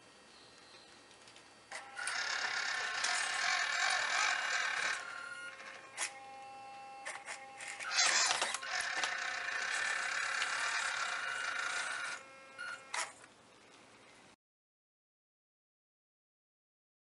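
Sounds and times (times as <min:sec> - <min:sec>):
electric toy truck motor whirring: 0:01.7 - 0:13.3.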